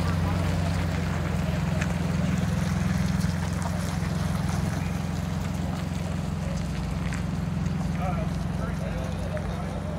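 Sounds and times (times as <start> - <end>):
truck engine drone: 0.0 - 9.9.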